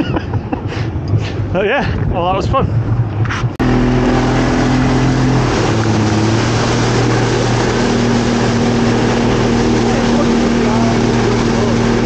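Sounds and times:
outboard motor drone: 2.4 - 12.0
wake and spray rushing: 3.6 - 12.0.

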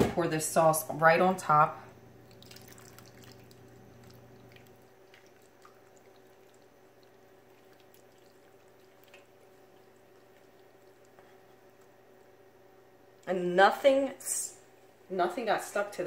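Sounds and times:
soft plops of food: 2.2 - 12.3.

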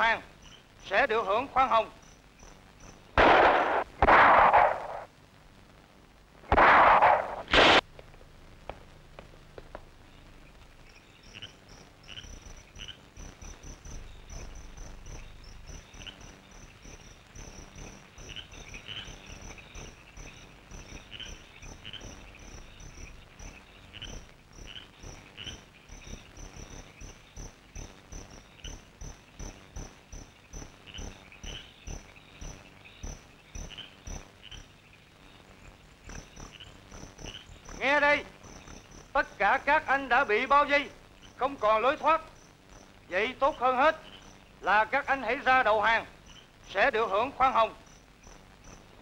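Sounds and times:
crickets chirping: 0.0 - 5.1, 8.7 - 49.0.

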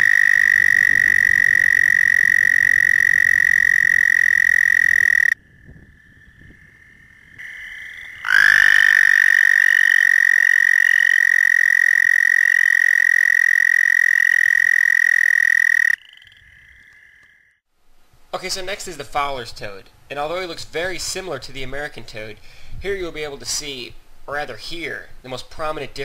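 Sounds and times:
toad trilling: 0.0 - 5.4, 7.4 - 17.5.

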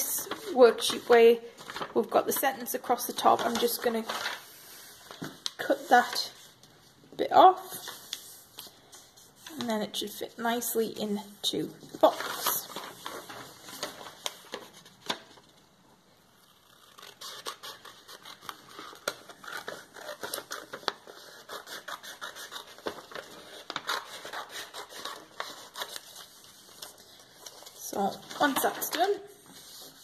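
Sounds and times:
paper rustling: 0.2 - 6.8, 11.8 - 15.6, 16.5 - 30.0.

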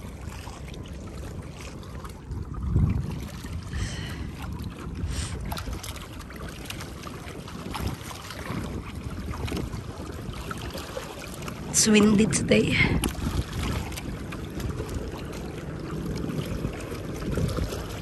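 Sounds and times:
water sloshing against boat hull: 0.0 - 18.0
wind buffeting microphone: 0.0 - 18.0.

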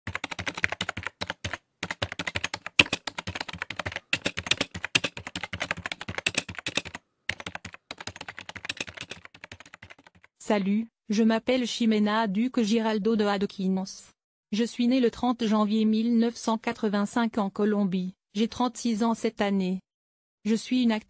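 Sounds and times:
keyboard typing clicks: 0.1 - 10.3.

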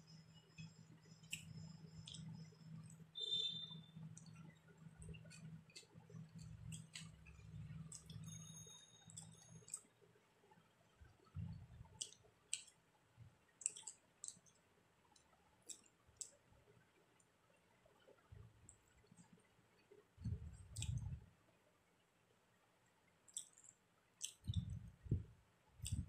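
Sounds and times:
soft chewing: 0.4 - 3.1, 4.1 - 8.4, 10.6 - 12.8, 13.5 - 17.3, 18.0 - 21.3, 23.3 - 26.0
mouth clicks and smacks: 1.2 - 3.0, 4.2 - 8.2, 11.3 - 12.7, 13.6 - 14.6, 20.2 - 21.2, 23.3 - 25.2.

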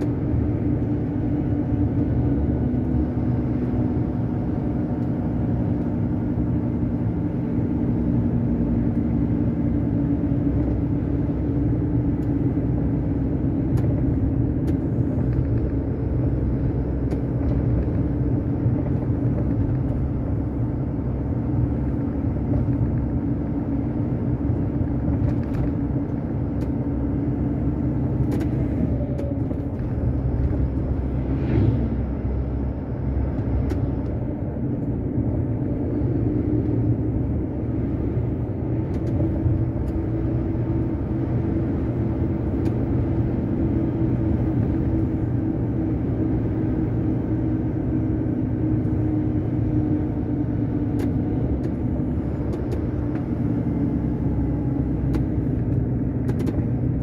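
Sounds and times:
truck engine and tyre rumble: 0.0 - 57.0.

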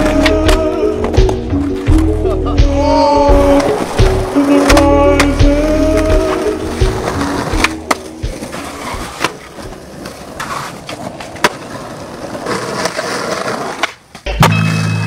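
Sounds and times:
skateboard wheels rolling on concrete: 0.0 - 15.0
skateboard clacks: 3.0 - 15.0.

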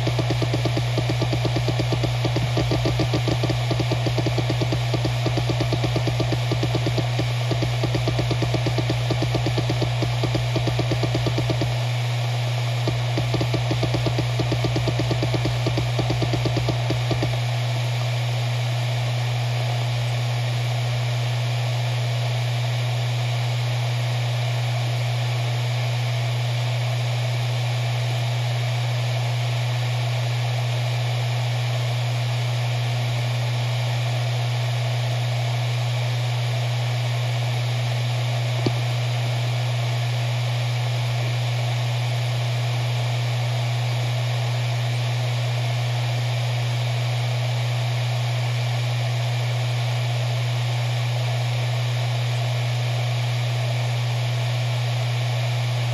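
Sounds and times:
hard drive click: 0.0 - 11.9, 12.8 - 17.4, 38.6 - 39.0
hard drive spinning hum: 0.0 - 24.9, 32.6 - 43.2.

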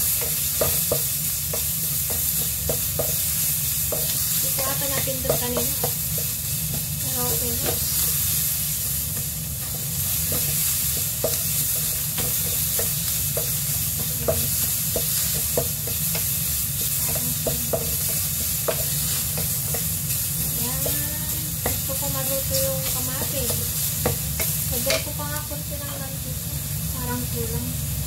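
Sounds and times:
vegetables sizzling in a wok: 0.0 - 28.0
spatula knocking against a pan: 0.2 - 3.3, 3.9 - 6.9, 10.2 - 20.0, 20.6 - 22.1, 22.8 - 25.2.

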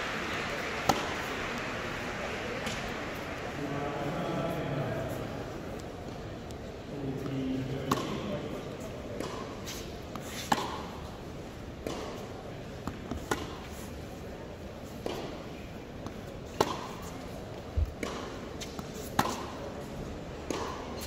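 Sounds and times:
racquet striking tennis ball: 0.5 - 1.6, 2.6 - 3.0, 7.8 - 8.4, 9.1 - 11.2, 11.8 - 13.8, 14.9 - 21.0.

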